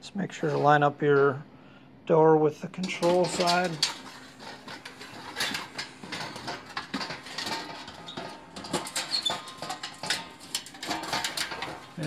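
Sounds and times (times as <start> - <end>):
metal clinking and rattling: 2.8 - 12.0.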